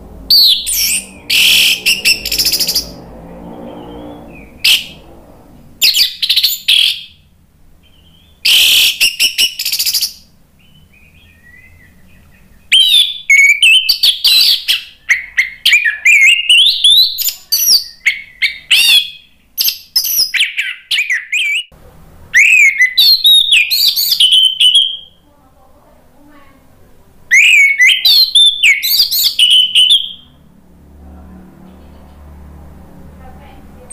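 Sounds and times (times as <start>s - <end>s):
thrush singing: 0.0s - 7.3s.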